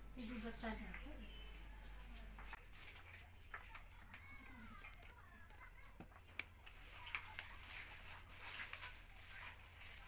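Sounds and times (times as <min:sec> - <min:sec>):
faint clicks and taps: 0:01.9 - 0:07.6.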